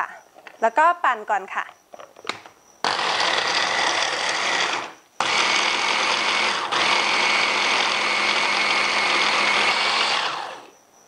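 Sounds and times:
electric chopper motor running: 0:02.9 - 0:10.7.

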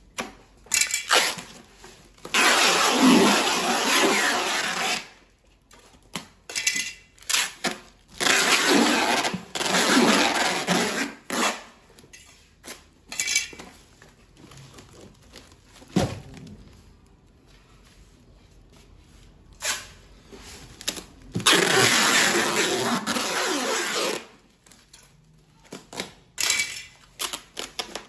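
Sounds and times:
packing tape ripping off roll: 0:00.8 - 0:05.2, 0:07.2 - 0:11.8, 0:20.8 - 0:24.8.

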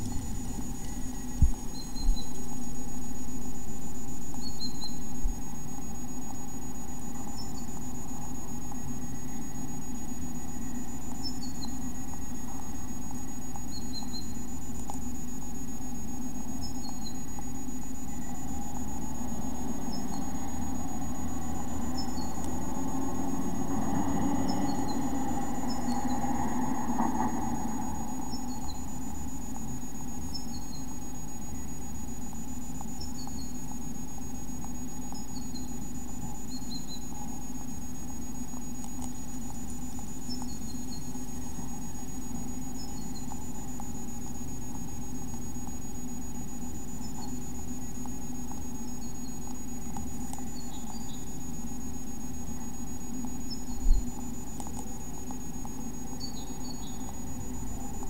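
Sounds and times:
faint high bird chirps: 0:00.0 - 0:02.6, 0:04.3 - 0:05.2, 0:13.7 - 0:14.5, 0:16.6 - 0:17.3
electrical hum with high whine: 0:00.0 - 0:58.0.

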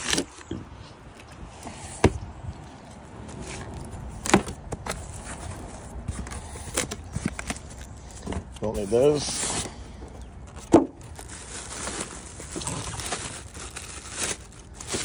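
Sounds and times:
cardboard rustling and scraping: 0:03.0 - 0:15.0.

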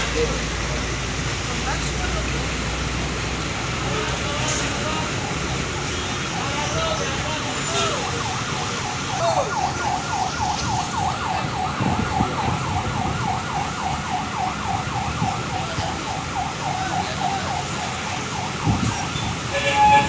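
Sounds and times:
bus engines running: 0:00.0 - 0:20.0
electronic siren yelping: 0:05.2 - 0:19.4.

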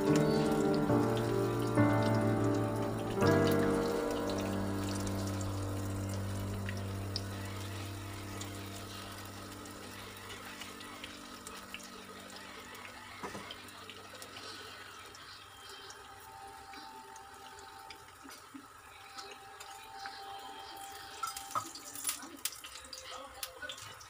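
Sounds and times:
batter deep-frying in oil: 0:00.0 - 0:24.0.

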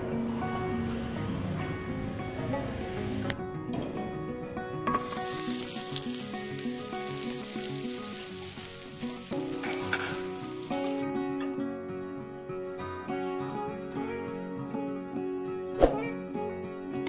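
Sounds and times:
meat sizzling on a griddle: 0:05.0 - 0:11.0.

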